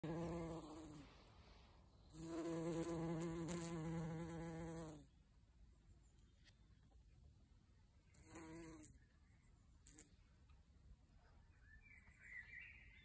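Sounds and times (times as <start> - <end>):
bumblebee buzzing: 0.0 - 1.1, 2.1 - 5.0, 8.2 - 8.9.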